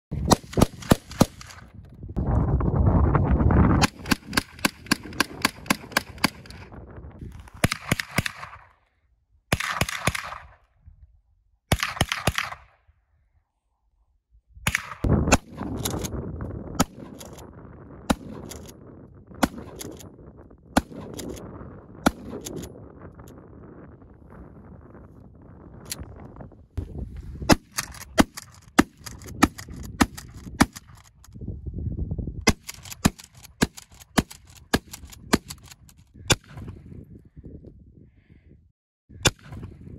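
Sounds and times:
rapid gunfire: 3.8 - 6.7.

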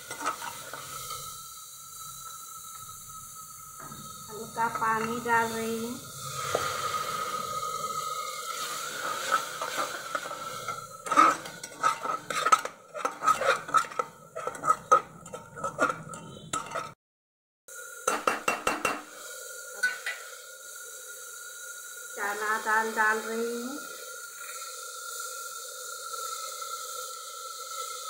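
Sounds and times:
metal spatula scraping a pot: 0.0 - 1.4, 3.8 - 17.0, 19.8 - 20.2.

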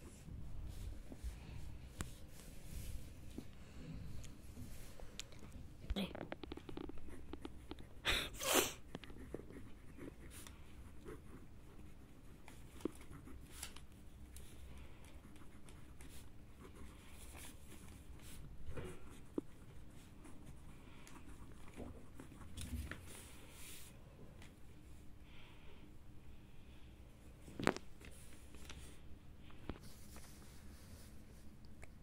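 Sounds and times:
pen scratching on paper: 8.8 - 13.9, 15.0 - 23.1.

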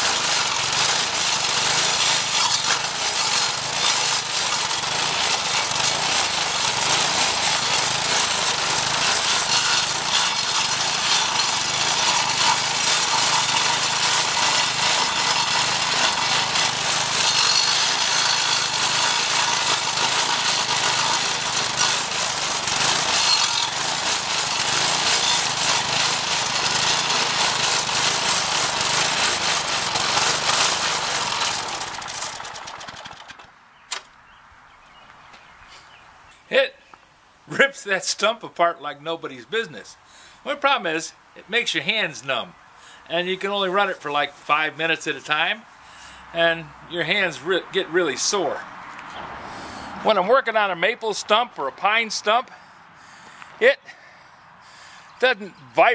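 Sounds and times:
engine hum: 0.0 - 34.1
stump grinder grinding wood: 0.0 - 34.1, 40.2 - 49.2.

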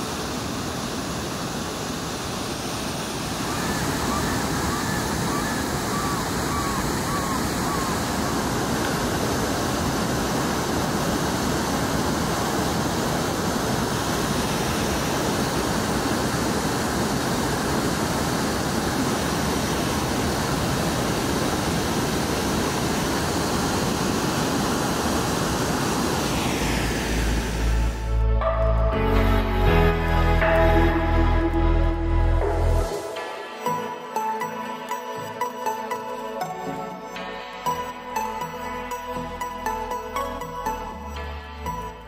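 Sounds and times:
waterfall rushing: 0.0 - 28.1.

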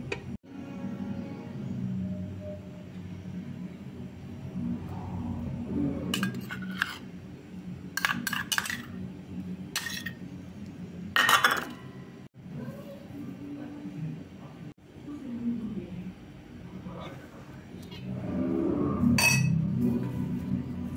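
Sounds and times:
metal spoon clinking in steel bowl: 8.0 - 9.0, 19.2 - 19.6.

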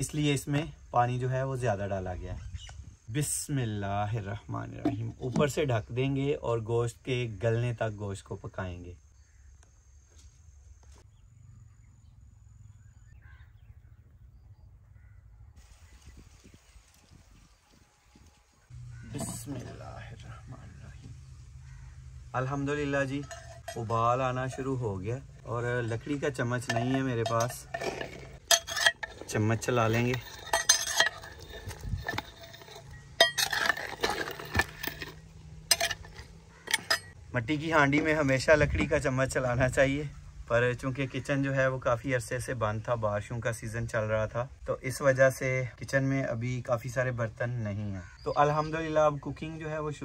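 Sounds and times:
spoon scraping a clay pot: 4.7 - 5.6, 22.4 - 37.2.

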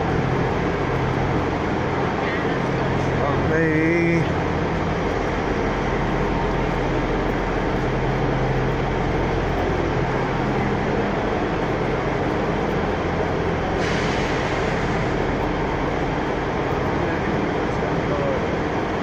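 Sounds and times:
diesel train engines running: 0.0 - 19.0
hiss: 13.7 - 15.5.

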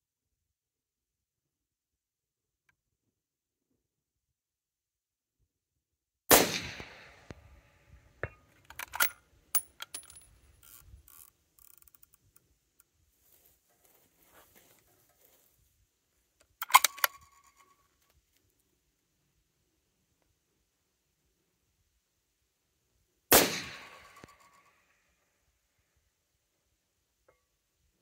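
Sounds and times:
rifle shot: 6.3 - 7.6, 23.3 - 24.7
rifle bolt metallic clicks: 8.2 - 12.5, 16.5 - 17.7.

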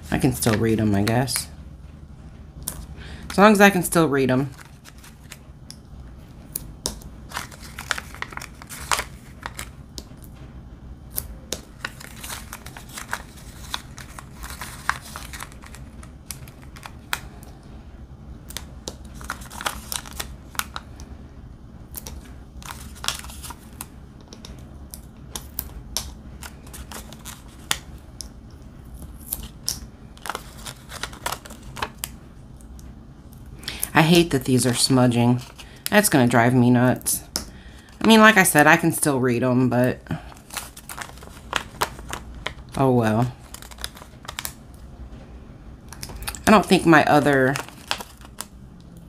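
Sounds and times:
steady low hum: 0.0 - 49.0
paper rustling: 4.4 - 5.4, 7.3 - 9.7, 11.7 - 17.2, 18.9 - 20.8, 22.1 - 23.9, 26.4 - 27.8, 30.2 - 32.1, 40.3 - 44.6, 46.1 - 48.5.

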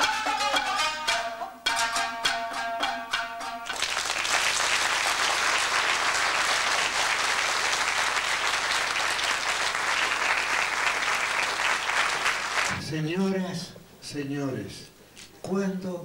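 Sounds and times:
plucked string music: 0.0 - 3.7
audience applauding: 3.7 - 12.8.

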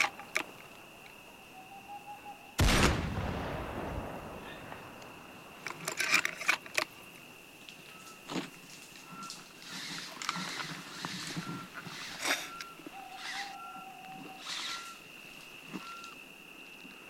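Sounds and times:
sharp cracks of gunfire: 2.6 - 5.4
deep rifle shot with echo: 2.6 - 5.6.

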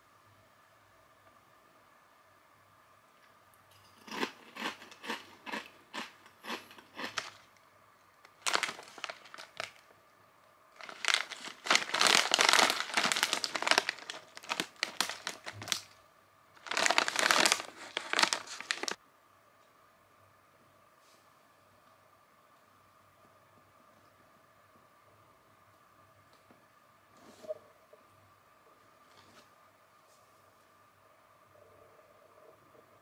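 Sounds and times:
foil snack bag crinkling: 4.6 - 7.5, 8.3 - 9.8, 10.8 - 16.0, 16.6 - 19.0.

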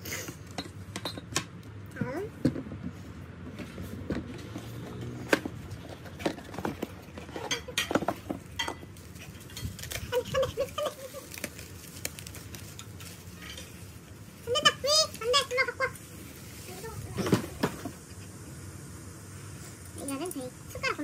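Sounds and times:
bubble wrap crinkling: 9.0 - 17.2.

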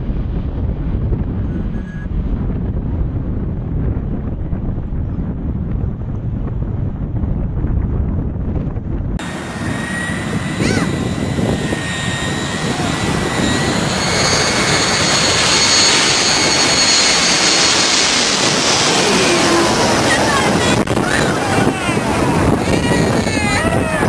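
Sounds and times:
loud rush of airliner: 0.0 - 24.0
wind buffeting microphone: 0.0 - 24.0
jet engines whining: 9.2 - 24.0.

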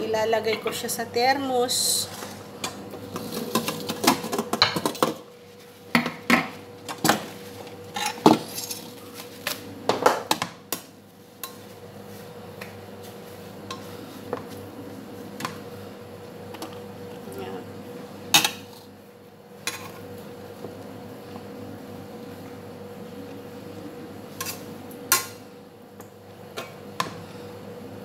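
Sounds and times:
faint steady hum: 0.0 - 28.0.

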